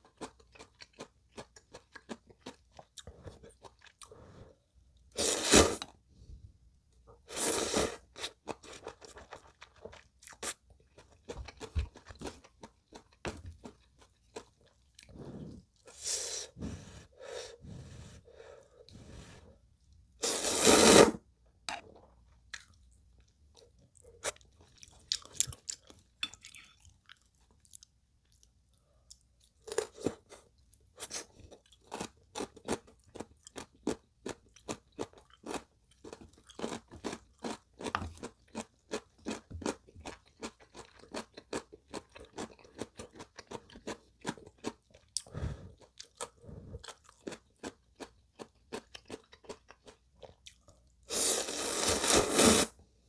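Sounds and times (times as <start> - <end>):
wet chewing and crunching: 0.0 - 4.1, 8.2 - 15.2, 22.0 - 30.0, 31.1 - 50.9
slurping noodles: 5.2 - 5.9, 7.3 - 8.4, 20.2 - 21.2, 51.1 - 52.8.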